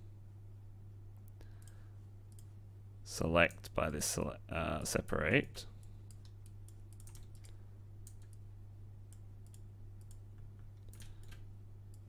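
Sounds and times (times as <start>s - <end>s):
steady low hum: 0.0s - 12.0s
computer mouse and keyboard clicks: 5.8s - 8.4s, 9.4s - 12.0s.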